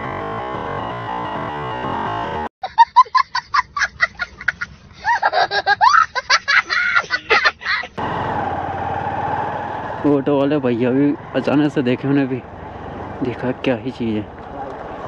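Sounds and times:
rapid cackling laughter: 2.6 - 8.0.

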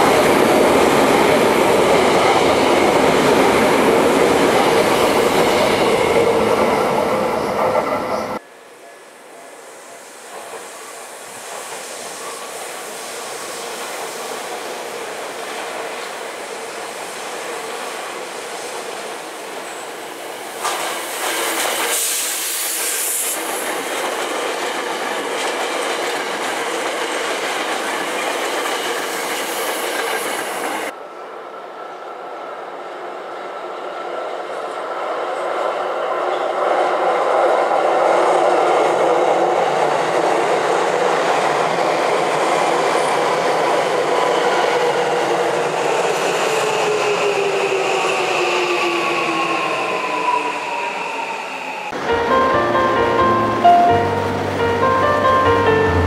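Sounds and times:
train wheels clattering on rails: 20.6 - 30.9.

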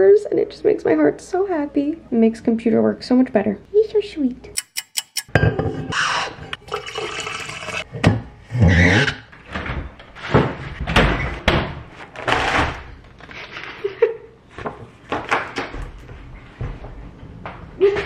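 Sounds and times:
fridge door opening and shutting: 9.3 - 13.1.

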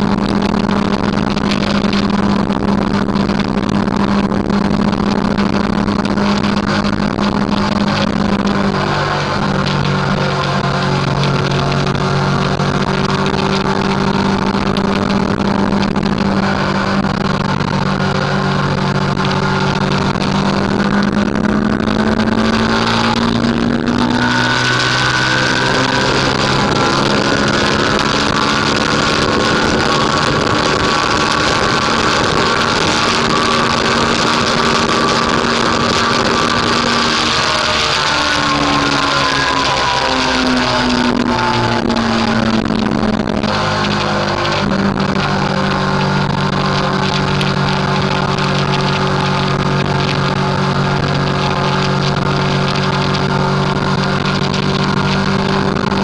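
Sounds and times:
motorcycle engine running: 0.0 - 56.0
wind rushing: 0.0 - 56.0.

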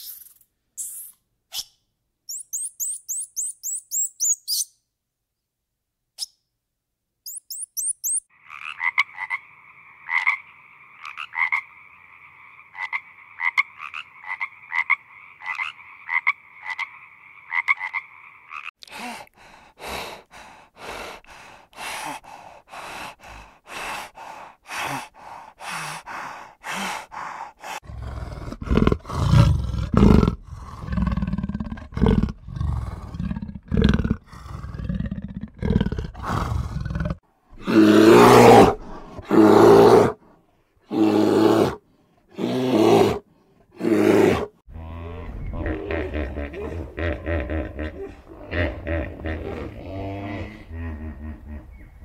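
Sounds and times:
big cat growling: 27.8 - 40.2, 42.4 - 51.8.

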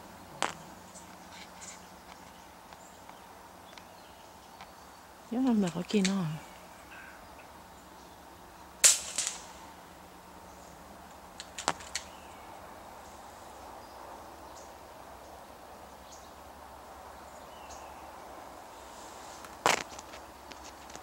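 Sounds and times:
faint outdoor hiss: 0.0 - 21.0
sharp snap: 8.8 - 9.6.

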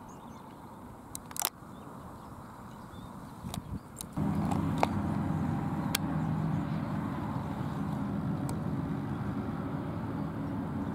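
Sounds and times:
low engine drone: 4.2 - 10.9.

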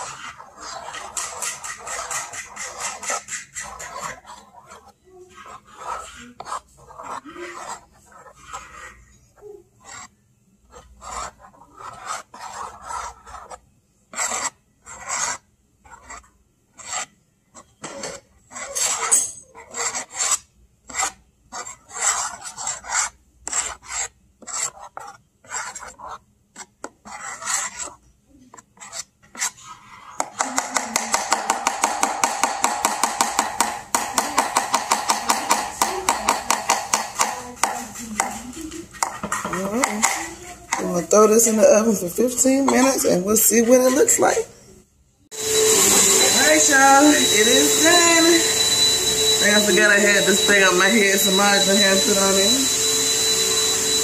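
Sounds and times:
rasping rub: 0.0 - 9.0, 10.7 - 17.1, 17.9 - 28.0
metal spoon scraping pan: 0.0 - 44.5, 45.4 - 54.0.

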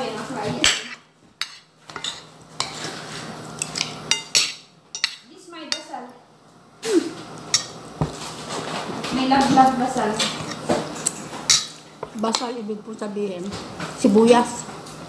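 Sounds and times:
cutlery clinking on a plate: 3.6 - 5.9, 7.5 - 7.8.

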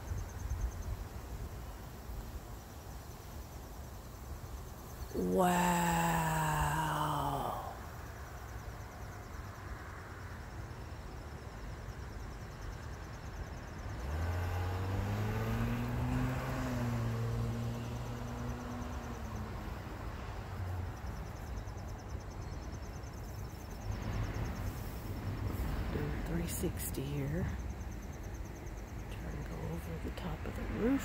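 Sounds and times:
insects trilling: 0.0 - 14.8
vehicle driving past: 13.8 - 20.9.

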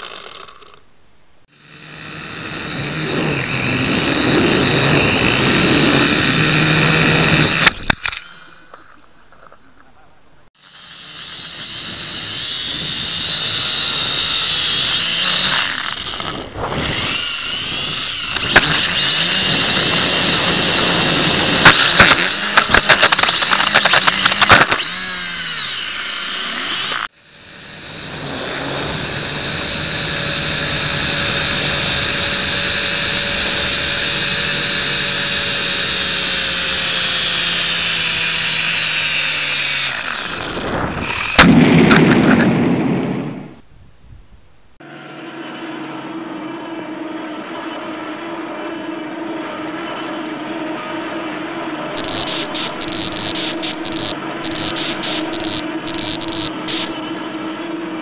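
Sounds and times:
drone motors whining: 0.0 - 0.9, 1.5 - 9.9, 10.6 - 42.0, 44.9 - 58.0.

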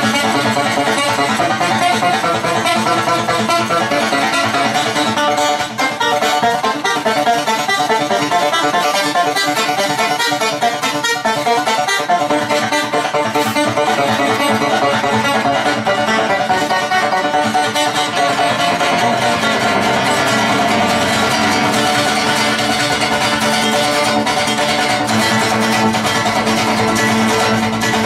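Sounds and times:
acoustic guitar: 0.0 - 28.0.

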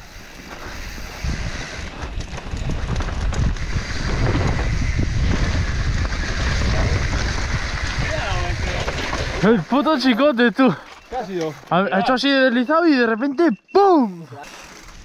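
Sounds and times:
tyres rumbling over dirt trail: 0.0 - 13.3
bike knocks and rattles: 0.4 - 9.8
wind buffeting microphone: 0.7 - 9.7.

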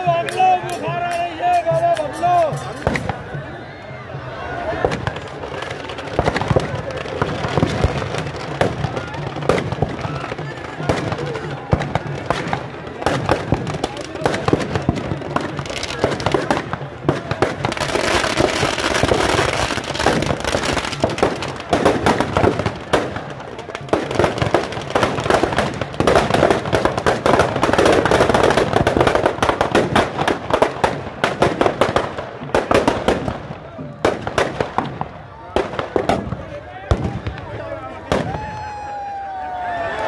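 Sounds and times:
firecrackers cracking and banging: 0.0 - 3.5, 4.6 - 40.0.

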